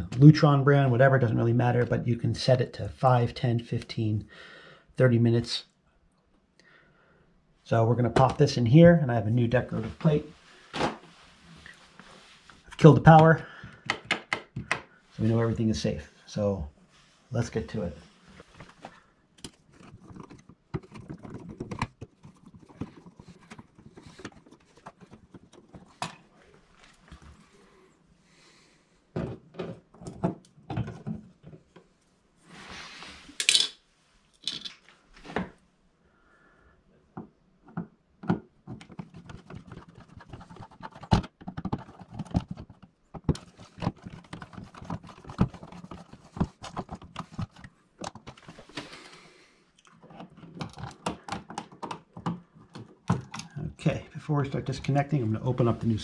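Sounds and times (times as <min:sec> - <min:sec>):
clicks and scrapes of metal and plastic: 0:17.7 - 0:27.5, 0:29.2 - 0:31.9, 0:37.6 - 0:53.6.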